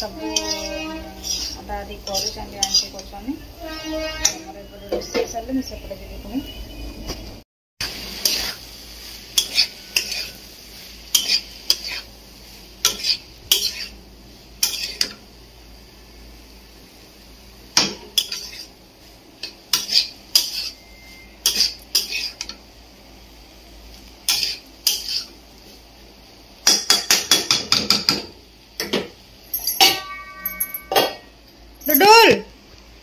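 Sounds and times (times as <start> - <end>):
metal spatula scraping a wok: 0.0 - 4.9, 8.0 - 14.0, 14.6 - 15.2, 18.1 - 18.8, 19.4 - 22.6, 24.3 - 25.4.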